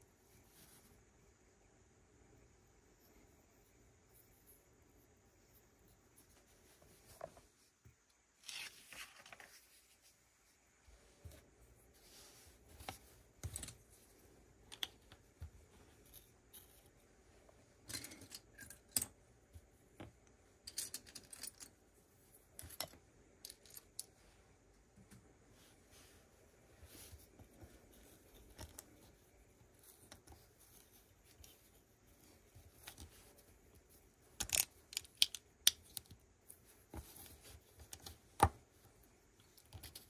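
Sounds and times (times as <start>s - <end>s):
plastic bricks clicking and rattling: 34.3s - 36.2s.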